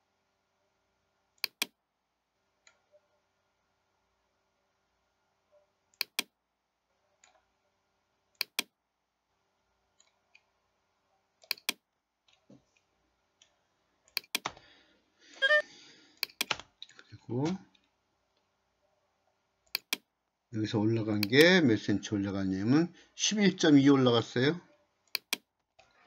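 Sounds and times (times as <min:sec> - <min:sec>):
mouse buttons clicking: 0:01.4 - 0:01.8, 0:06.0 - 0:06.3, 0:08.4 - 0:08.7, 0:11.4 - 0:11.8, 0:14.1 - 0:14.6, 0:19.7 - 0:20.1, 0:25.1 - 0:25.5.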